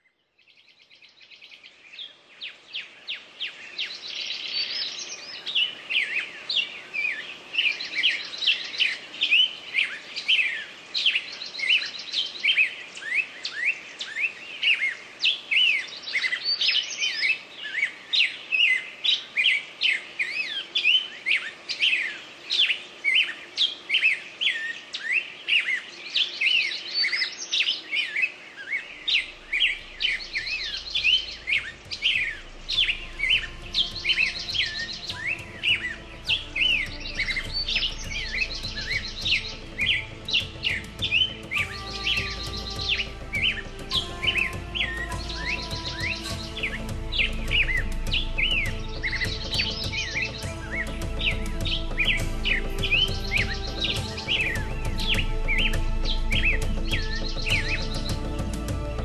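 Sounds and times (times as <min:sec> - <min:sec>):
small birds chirping and singing: 0:00.0 - 0:59.0.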